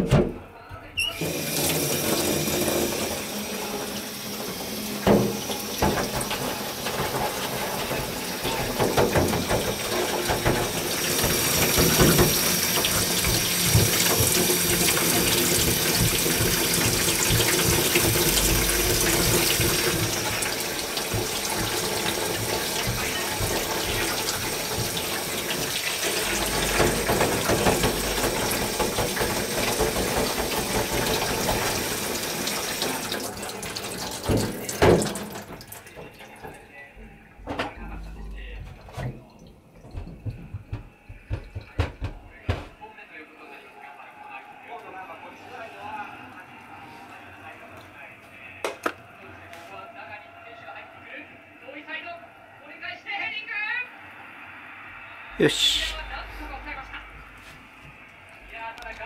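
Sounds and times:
tap running into metal sink: 1.1s - 36.6s, 37.4s - 42.7s
things clattering in sink: 1.1s - 42.8s.

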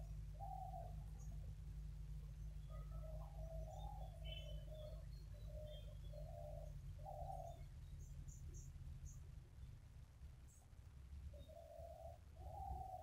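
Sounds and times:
bird cooing: 0.0s - 1.0s, 2.6s - 7.7s, 11.3s - 13.0s
small birds chirping: 0.0s - 13.0s.

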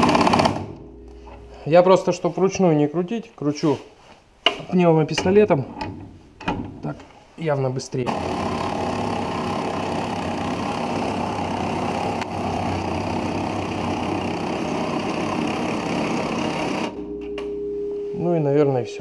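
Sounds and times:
pneumatic impact wrench running: 0.0s - 0.7s, 8.1s - 17.0s.

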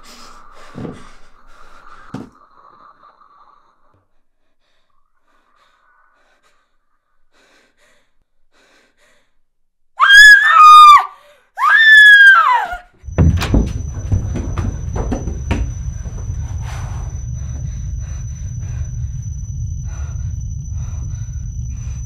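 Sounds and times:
woman screaming: 10.0s - 12.9s
low rumble with knocks: 13.0s - 22.0s
thin steady high tone: 13.0s - 22.0s.

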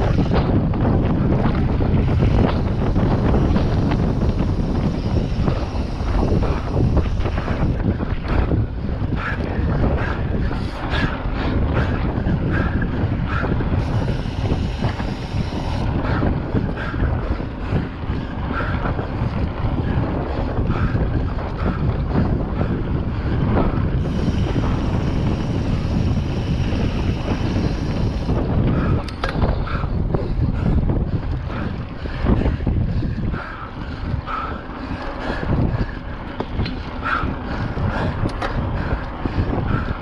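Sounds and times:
bike rattles and knocks: 0.0s - 40.0s
constant rumble: 0.0s - 40.0s
wind buffeting microphone: 0.0s - 40.0s.

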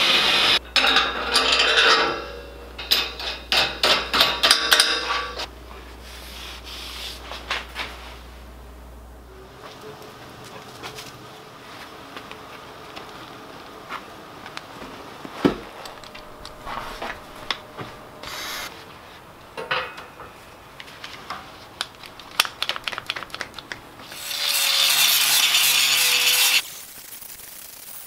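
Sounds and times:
steel parts clanking: 0.6s - 5.5s, 19.5s - 20.5s
angle grinder grinding steel: 24.0s - 28.0s.

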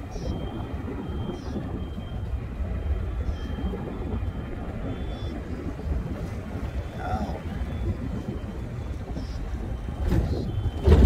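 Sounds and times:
car engine and tyre drone: 0.0s - 11.0s.

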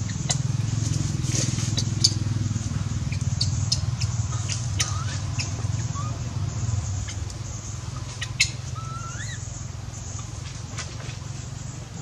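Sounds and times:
infant monkey squeaky cries: 3.1s - 6.2s, 8.0s - 9.6s.

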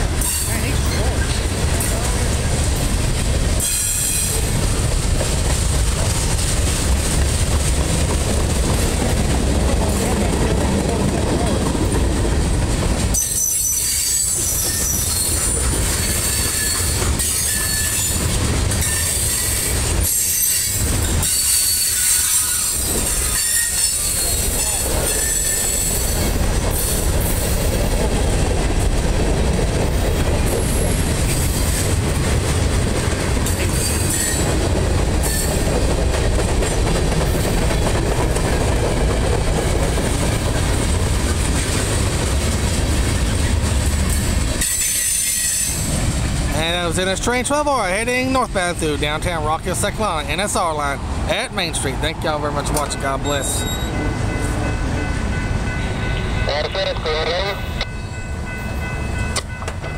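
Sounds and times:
train wheels rumbling on rails: 0.0s - 59.9s
high-pitched wheel squeal: 13.2s - 18.2s, 18.8s - 24.4s.

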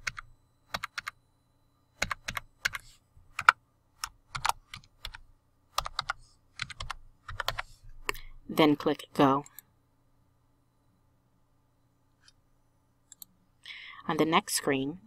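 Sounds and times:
computer keyboard typing: 0.0s - 1.2s, 2.0s - 7.7s.

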